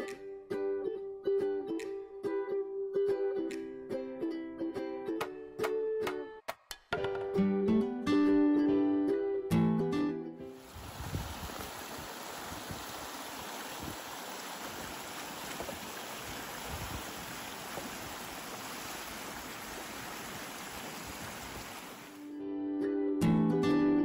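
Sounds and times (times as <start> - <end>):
ukulele music: 0.0 - 10.5, 22.2 - 24.0
river rushing over cobbles: 10.6 - 22.2.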